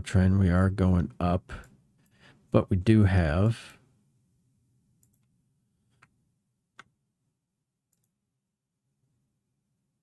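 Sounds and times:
computer mouse clicking: 5.0s - 5.3s, 7.9s - 8.1s.

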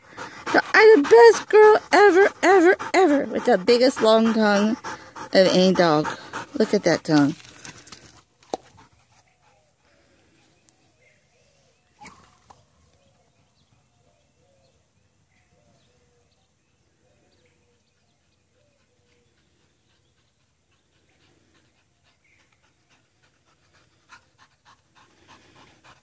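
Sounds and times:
dog panting: 0.0s - 9.8s, 17.9s - 26.0s.

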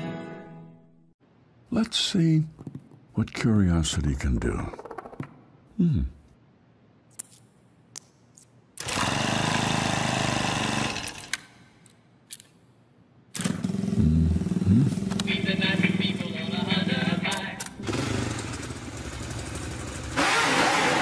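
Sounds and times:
small engine running: 8.8s - 11.3s, 13.4s - 15.2s, 17.8s - 21.0s
small motorcycle engine starting: 8.8s - 11.3s, 13.4s - 15.2s, 17.8s - 21.0s.

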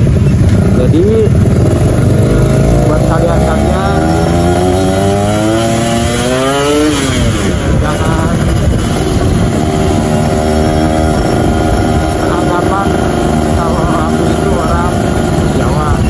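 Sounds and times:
two-stroke motorcycle engine: 0.0s - 16.0s.

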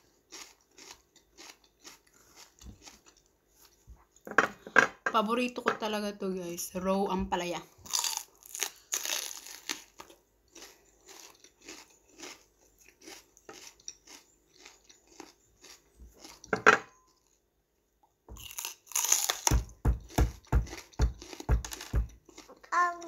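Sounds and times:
raw vegetable crunching when chewed: 0.0s - 3.8s, 7.8s - 16.5s, 18.4s - 23.0s.

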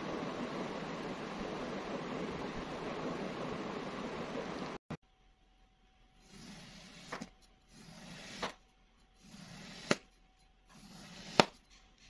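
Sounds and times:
knife cutting gritty sand: 6.3s - 8.6s, 9.2s - 11.9s
blade tapping tabletop: 9.2s - 12.0s.

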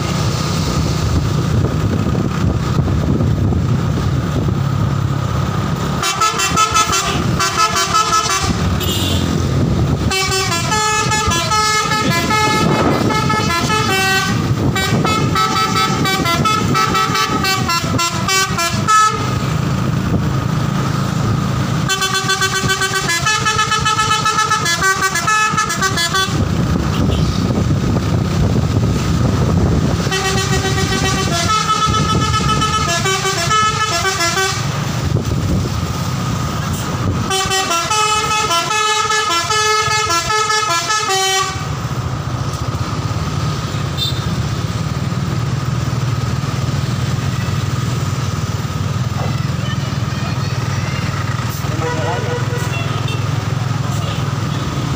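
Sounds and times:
low rumble of traffic engines: 0.0s - 54.9s
musical air horn melody: 6.0s - 9.4s, 10.0s - 19.3s, 21.9s - 27.3s, 30.0s - 34.8s, 37.3s - 41.7s, 51.6s - 53.2s.

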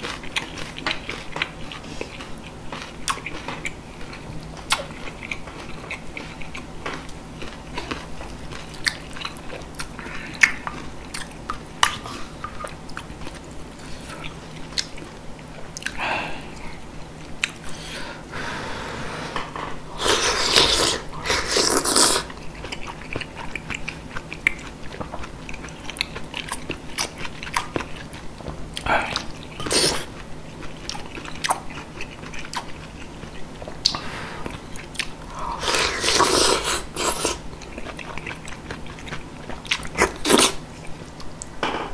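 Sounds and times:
wet chewing and mouth clicks: 0.0s - 17.6s, 20.0s - 41.5s
slurping soup: 18.4s - 22.3s, 35.3s - 37.4s, 40.0s - 40.6s.

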